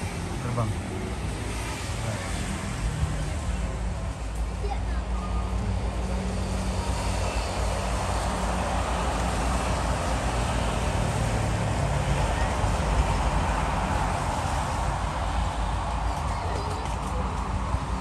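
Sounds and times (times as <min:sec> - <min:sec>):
jet engines rushing: 0:05.3 - 0:18.0.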